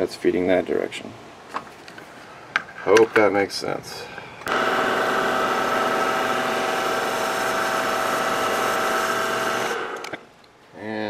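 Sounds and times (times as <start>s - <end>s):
metal lathe motor and gear whine: 4.5s - 10.2s.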